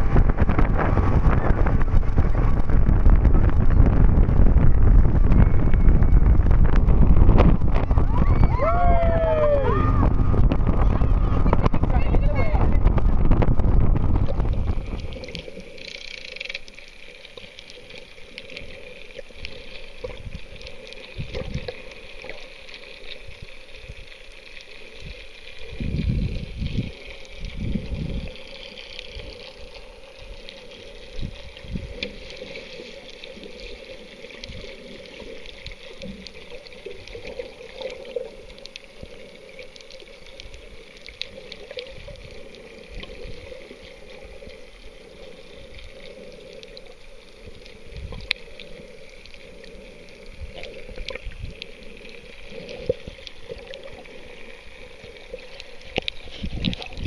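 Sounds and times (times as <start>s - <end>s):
low underwater thumps: 0.0s - 15.1s
underwater wash of water: 0.0s - 57.0s
faint clicks: 14.2s - 57.0s.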